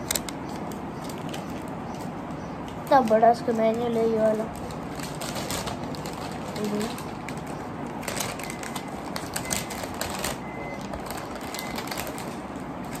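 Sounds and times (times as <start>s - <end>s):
paper crinkling and rustling: 2.9s - 13.0s.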